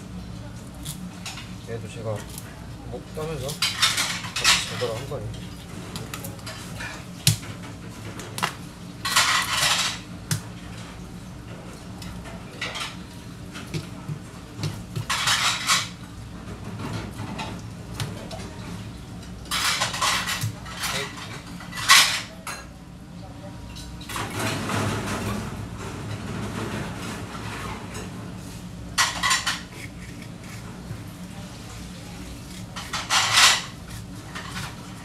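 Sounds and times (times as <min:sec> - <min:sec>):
knife rasping along fish bones: 0:29.5 - 0:30.8.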